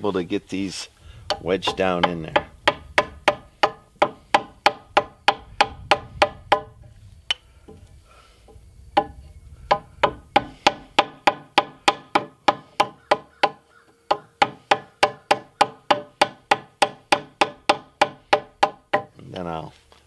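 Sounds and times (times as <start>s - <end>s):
hammer striking chisel: 1.3s - 6.7s, 9.0s - 19.2s.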